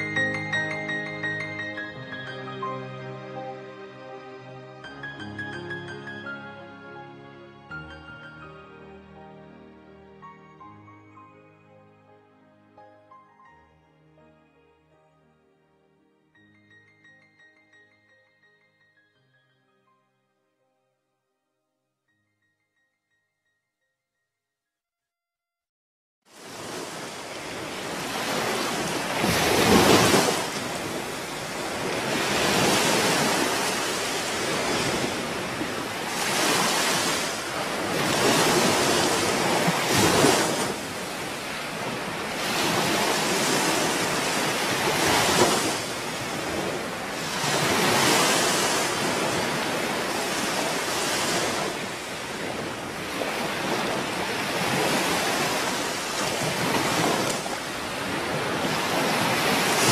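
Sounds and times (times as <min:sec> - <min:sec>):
ocean waves washing in: 0:26.3 - 0:59.9.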